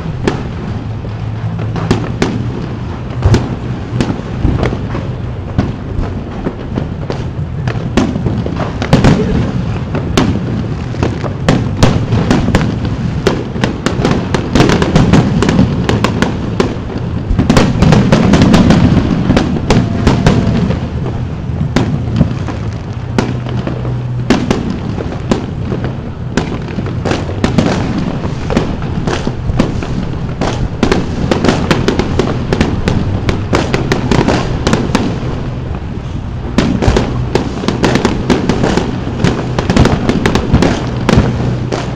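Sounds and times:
fireworks bangs and crackles: 0.0 - 41.9.

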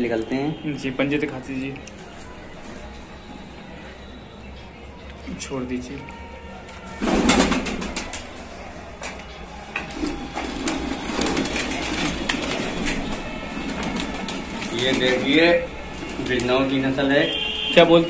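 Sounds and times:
pigeon wing flapping: 6.9 - 8.5, 9.8 - 16.9
pigeons cooing: 7.0 - 16.4.

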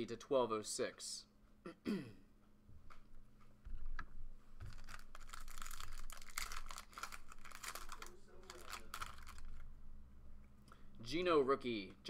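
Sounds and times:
foil wrapper crinkling and tearing: 4.7 - 9.6.

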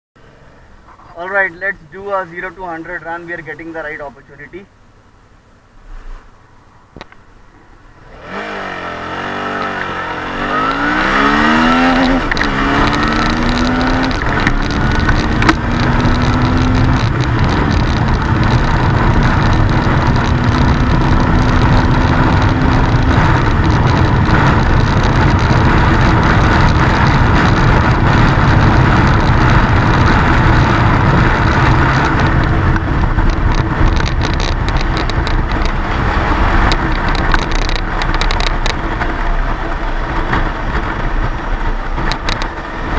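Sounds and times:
motorcycle engine accelerating: 8.0 - 42.9
wind rushing: 8.1 - 38.0.

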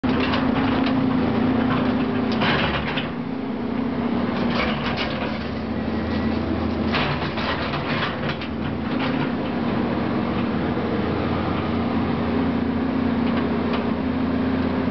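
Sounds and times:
debris clattering and crunching: 0.0 - 3.2, 4.3 - 9.8
excavator diesel engine running: 0.0 - 14.9.

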